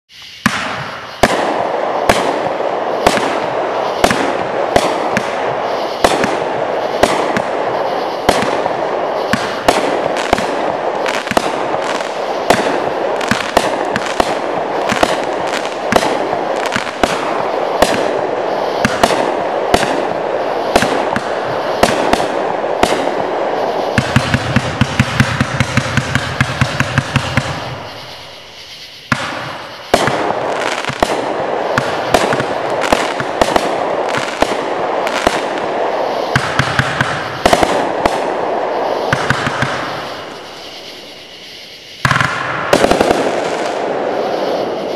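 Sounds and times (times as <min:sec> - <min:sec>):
firework crackling: 0:00.1 - 0:44.9
firework shots: 0:00.1 - 0:44.9
fast firework pops: 0:00.2 - 0:18.2, 0:18.8 - 0:23.2, 0:23.8 - 0:28.1, 0:29.0 - 0:38.4, 0:39.1 - 0:40.0, 0:42.0 - 0:43.9.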